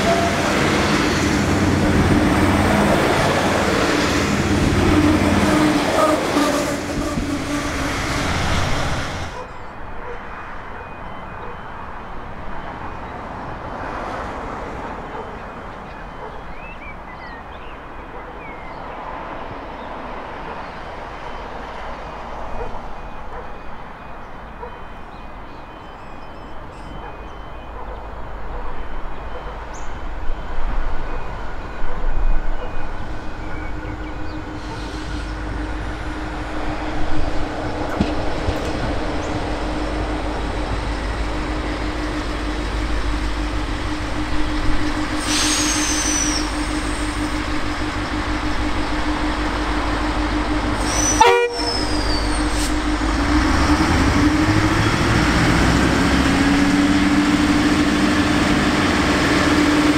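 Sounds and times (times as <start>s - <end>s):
train approaching on rails: 0.0s - 59.9s
steady engine drone: 33.6s - 59.9s.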